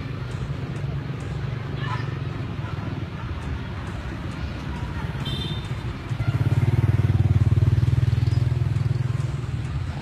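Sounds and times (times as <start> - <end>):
vehicle engine running: 2.3 - 10.0.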